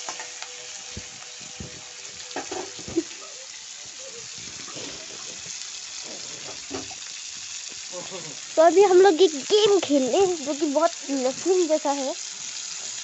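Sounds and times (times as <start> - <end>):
vegetables sizzling in oil: 0.0 - 13.0.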